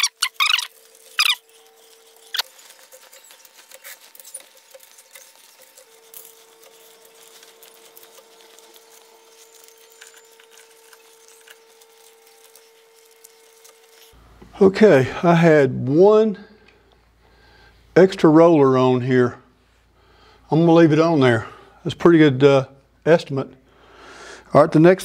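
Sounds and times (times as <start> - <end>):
fabric rustling: 0.0 - 14.2.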